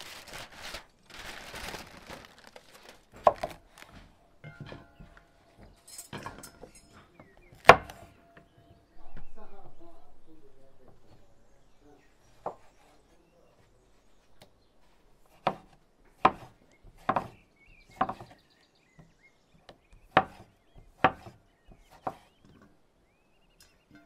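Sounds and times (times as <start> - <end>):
knife slicing tomatoes: 15.2 - 18.4, 20.0 - 22.4
knife knocking on wooden board: 15.5 - 18.4, 20.0 - 22.2.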